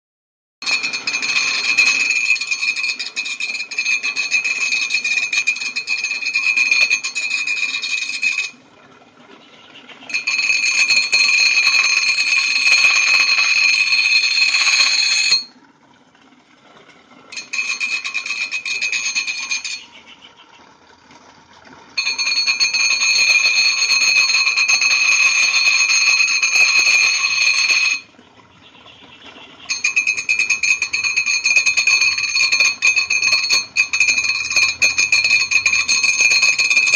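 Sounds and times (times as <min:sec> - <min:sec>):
blade grinding on sharpening wheel: 0:00.6 - 0:08.6, 0:10.1 - 0:15.5, 0:17.4 - 0:20.0, 0:22.0 - 0:28.0, 0:29.7 - 0:36.9.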